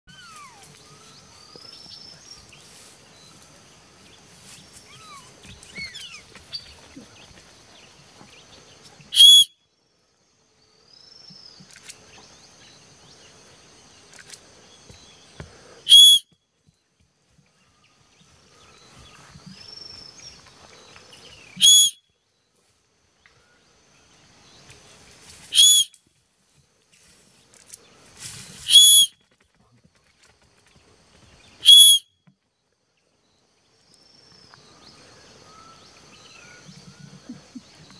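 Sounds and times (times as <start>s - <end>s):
birds twittering: 0.1s - 9.4s, 34.3s - 37.9s
high-pitched whistles: 9.2s - 9.5s, 15.9s - 16.3s, 21.6s - 22.0s, 25.5s - 25.9s, 28.7s - 29.1s, 31.6s - 32.1s.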